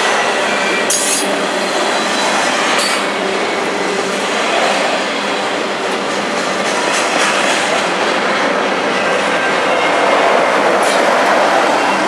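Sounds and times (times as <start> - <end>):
train wheels rolling on rail: 0.0 - 12.0.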